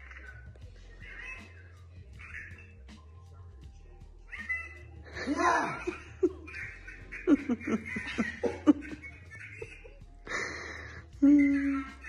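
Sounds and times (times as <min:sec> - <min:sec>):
people laughing: 0:05.2 - 0:11.9.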